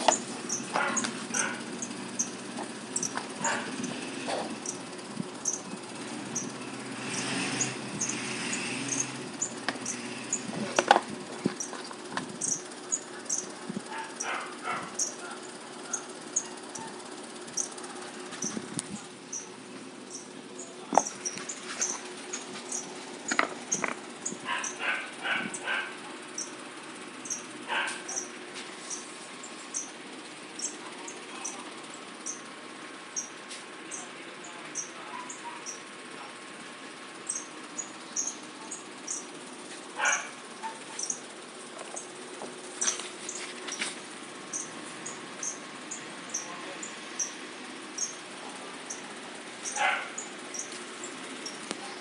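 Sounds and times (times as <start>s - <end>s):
small animal squeaking: 11.6s - 17.8s, 40.0s - 41.2s
sharp taps and knocks: 20.9s - 22.0s.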